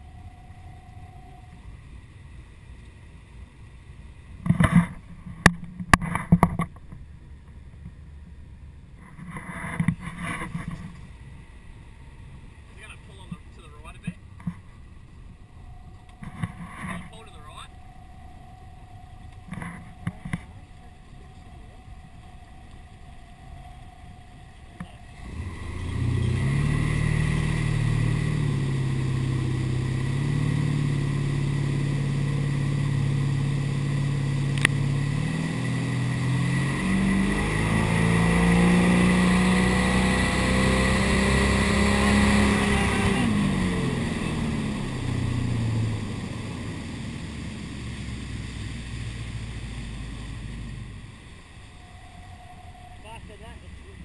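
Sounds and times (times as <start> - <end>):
boat engine: 0.0 - 54.0
water rushing and spraying: 10.4 - 54.0.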